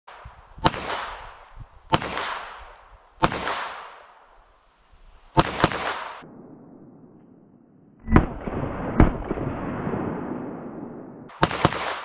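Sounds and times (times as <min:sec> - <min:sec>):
pistol shots with echo: 0:00.6 - 0:04.0, 0:05.4 - 0:06.4, 0:10.2 - 0:12.0.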